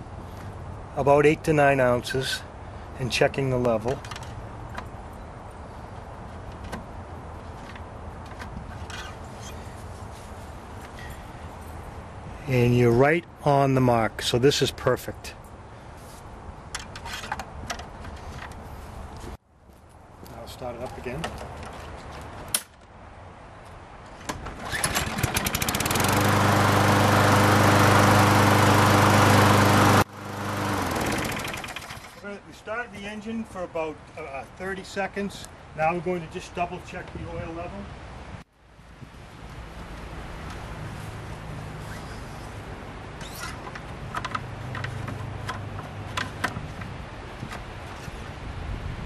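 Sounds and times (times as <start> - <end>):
lawn mower engine starting: 24.4 - 32.3.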